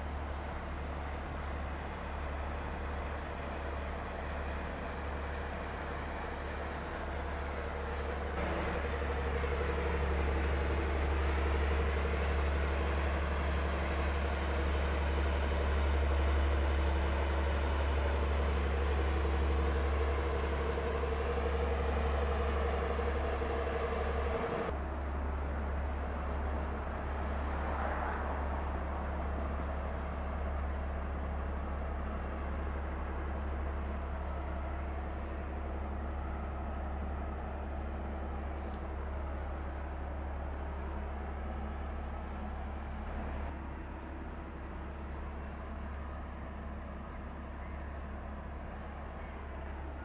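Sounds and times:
low diesel engine rumble: 0.0 - 50.0
droning hum: 4.5 - 50.0.

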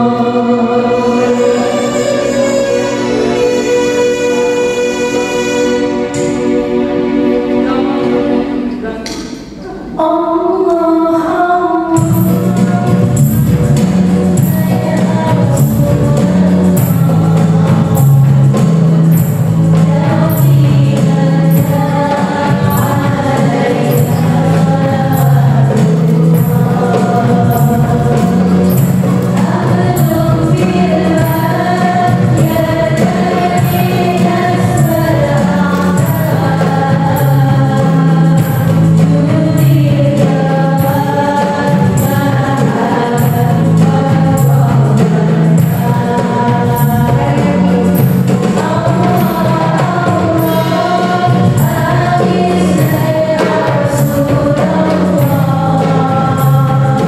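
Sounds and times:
keyboard accompaniment: 0.0 - 57.0
voices singing devotional song: 0.0 - 57.0
steady percussion beat: 11.9 - 57.0.

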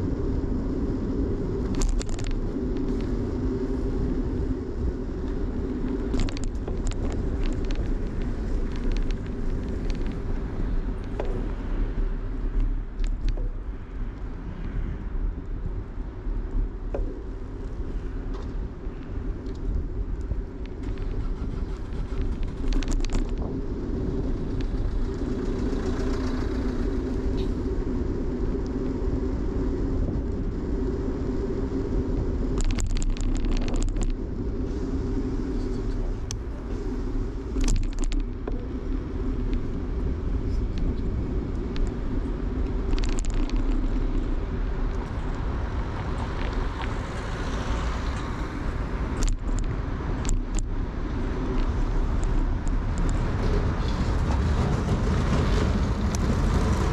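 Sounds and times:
bicycle ride rumble: 0.0 - 56.9
clicking and rattling: 5.8 - 10.3, 20.6 - 23.5, 32.6 - 34.2, 37.6 - 38.6, 42.8 - 44.2.

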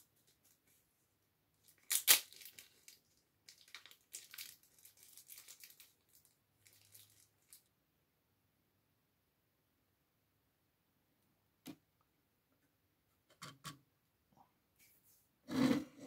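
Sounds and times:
plastic packaging crinkling and tearing: 1.6 - 7.7.

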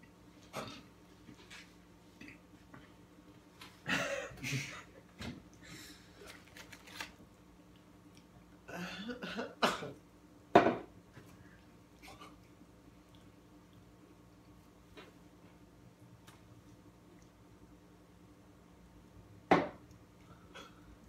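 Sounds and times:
man clearing his throat: 3.8 - 4.9
man coughing: 3.8 - 4.9, 8.7 - 10.0.

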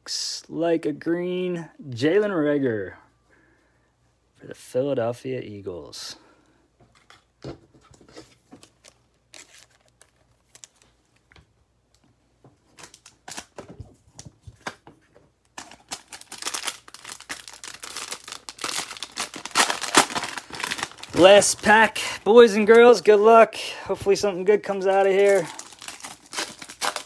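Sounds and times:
foil wrapper tearing: 8.8 - 10.9, 15.6 - 21.7, 24.8 - 27.0.

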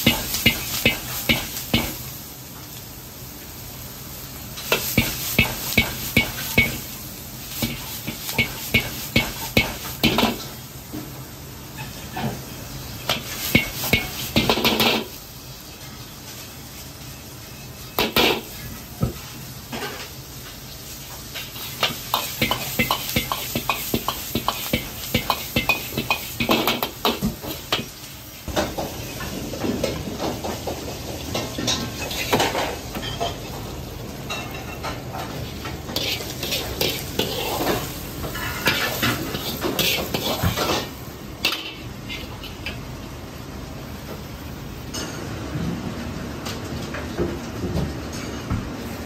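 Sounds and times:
food sizzling: 0.0 - 44.9.

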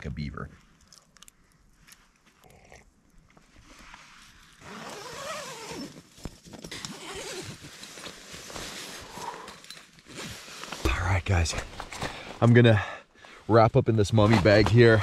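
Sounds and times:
tent fabric rustling: 3.5 - 10.9
sleeping bag rustling: 3.6 - 10.8.

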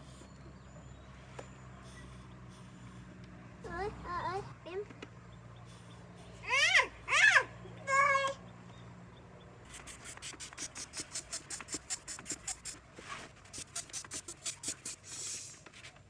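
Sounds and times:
air pump hissing strokes: 9.7 - 12.8, 13.5 - 15.6.

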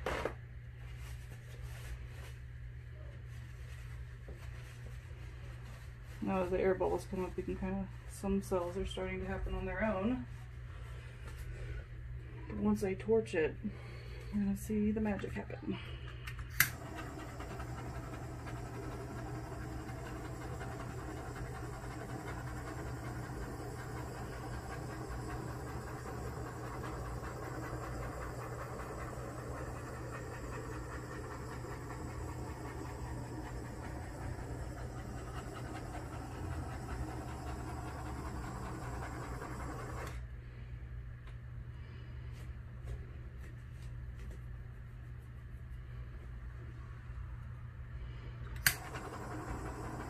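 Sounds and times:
butane torch hissing: 16.5 - 40.2, 48.6 - 50.0.

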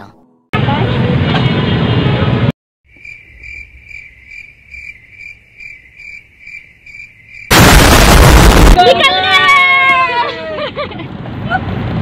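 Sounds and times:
cricket chirping: 2.9 - 7.8.

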